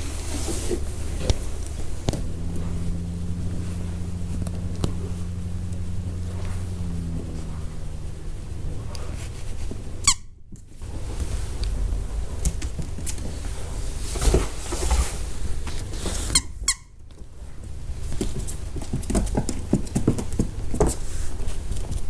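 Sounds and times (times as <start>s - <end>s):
toy squeaker squeaking: 10.0s - 10.3s.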